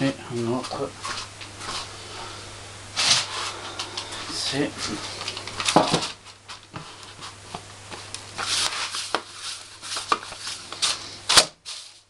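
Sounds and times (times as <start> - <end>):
hands rubbing and patting dough: 3.0 - 12.0.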